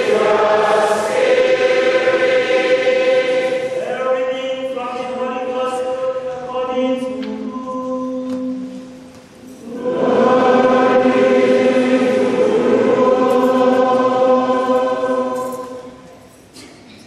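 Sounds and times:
choir singing chant: 0:00.0 - 0:04.3, 0:09.6 - 0:16.2.

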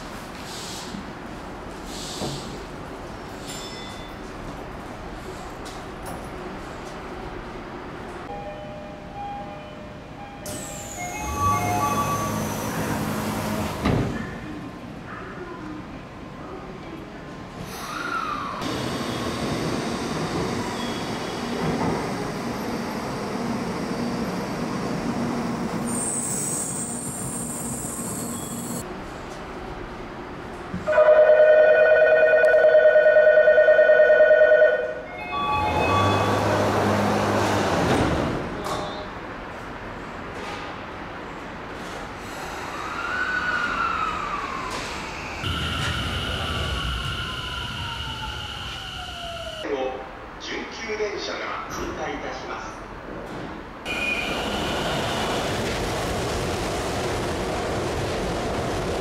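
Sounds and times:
sliding doors closing with hiss: 0:00.3 - 0:01.2, 0:01.8 - 0:02.7, 0:10.5 - 0:14.3, 0:35.5 - 0:38.7
low hum of sliding doors: 0:10.5 - 0:14.8, 0:35.2 - 0:49.6.

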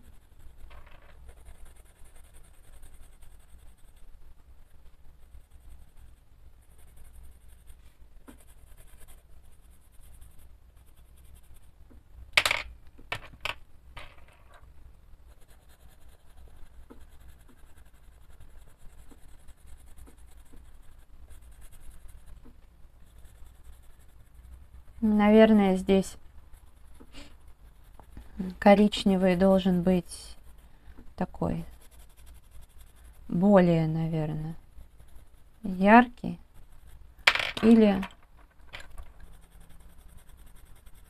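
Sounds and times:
pencil scratching on paper: 0:00.0 - 0:11.8, 0:15.2 - 0:41.0
pencils clacking down: 0:37.3 - 0:39.0.

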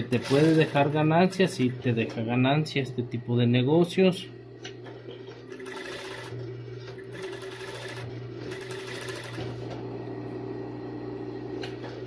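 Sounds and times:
sewing machine stitching: 0:00.0 - 0:01.0, 0:05.5 - 0:09.6
sewing machine motor humming: 0:00.0 - 0:01.8, 0:05.2 - 0:10.0.

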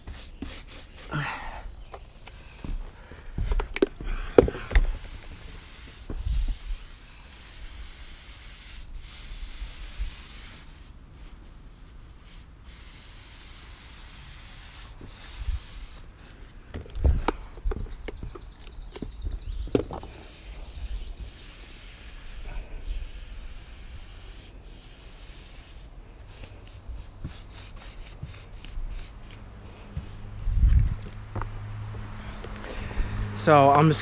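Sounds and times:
paintbrush swishing on wood: 0:04.8 - 0:11.4, 0:20.1 - 0:30.7.

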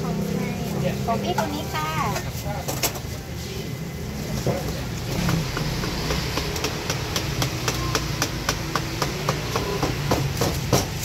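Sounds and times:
dough scraper tapping tabletop: 0:05.2 - 0:11.0.

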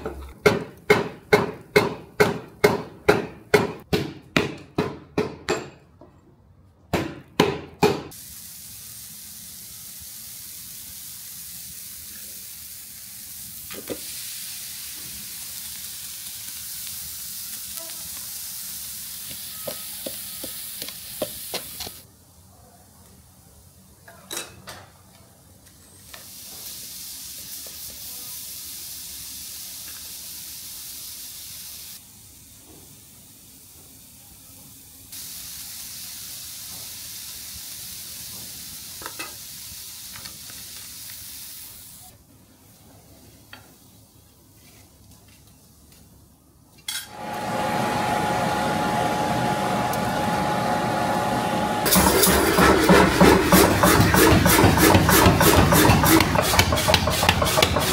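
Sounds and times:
steady high hiss: 0:08.1 - 0:24.1, 0:25.5 - 0:44.6.

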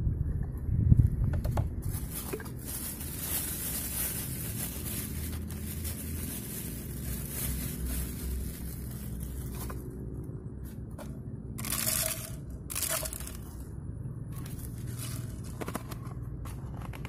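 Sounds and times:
low wind rumble: 0:00.0 - 0:17.0
plastic bag rustling: 0:01.8 - 0:10.0, 0:11.6 - 0:17.0.

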